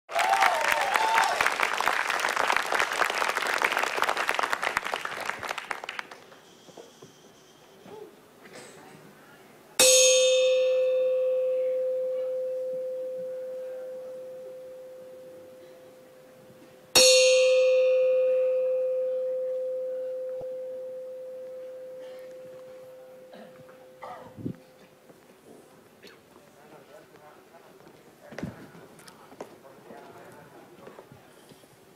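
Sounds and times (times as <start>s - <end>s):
audience applause: 0.1s - 6.4s.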